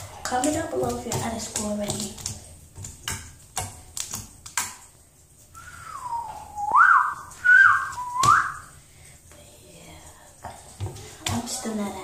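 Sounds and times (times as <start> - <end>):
person whistling a tune: 5.6 - 8.7.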